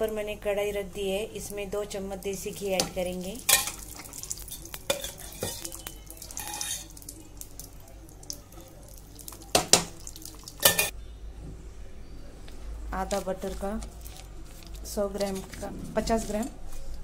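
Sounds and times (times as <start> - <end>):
metal spoon clinking on pan: 2.8 - 7.0, 10.6 - 10.9.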